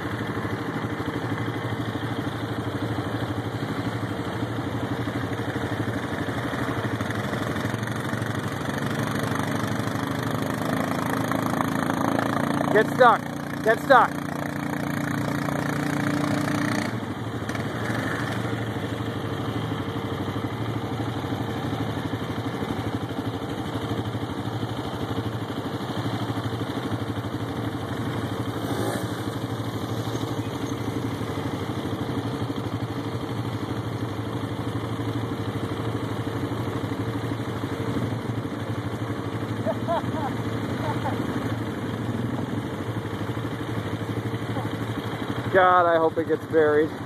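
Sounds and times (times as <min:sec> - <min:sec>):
atv engine running: 0:00.0 - 0:47.0
quad churning through mud: 0:02.0 - 0:19.7, 0:24.4 - 0:33.9.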